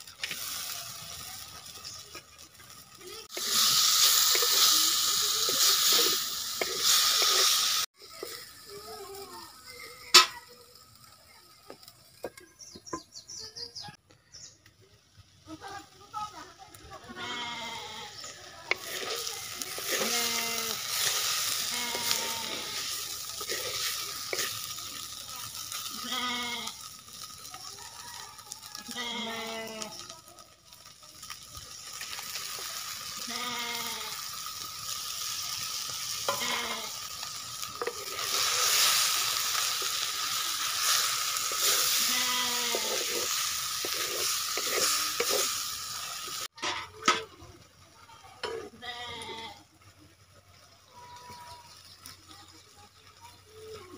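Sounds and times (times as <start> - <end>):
fish sizzling in a pot: 0.0 - 53.9
livestock bleating: 17.1 - 18.2, 19.9 - 20.8, 21.6 - 22.8, 25.9 - 26.8, 28.9 - 30.0, 33.2 - 34.2, 36.3 - 37.0, 41.6 - 43.2, 48.7 - 49.6.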